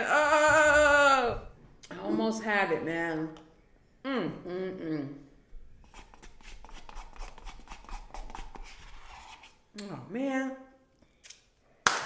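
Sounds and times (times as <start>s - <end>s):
wooden spoon scraping a cup: 5.8s - 9.6s.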